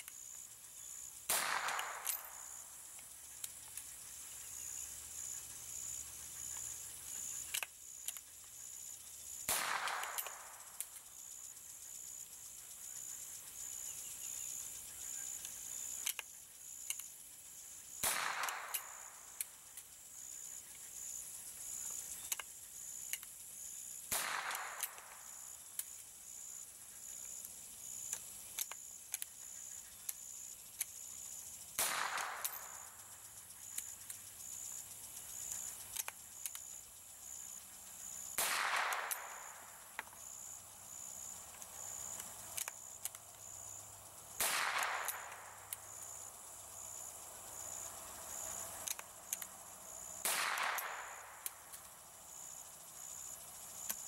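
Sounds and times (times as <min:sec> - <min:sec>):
rifle shots with echo: 0:01.3 - 0:02.6, 0:09.4 - 0:10.6, 0:18.0 - 0:19.4, 0:24.1 - 0:25.4, 0:31.8 - 0:33.0, 0:38.4 - 0:39.7, 0:44.4 - 0:45.7, 0:50.2 - 0:51.5.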